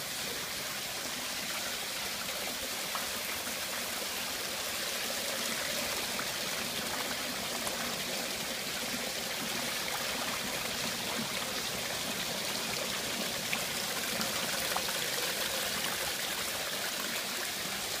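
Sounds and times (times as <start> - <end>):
water running in steadily: 0.0 - 18.0.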